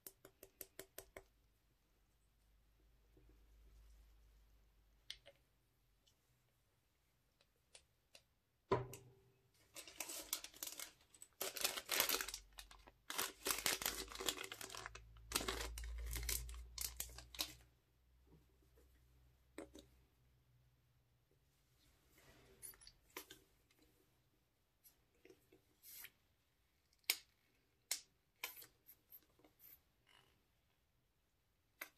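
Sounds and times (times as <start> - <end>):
plastic bag crinkling and tearing: 9.7 - 17.6.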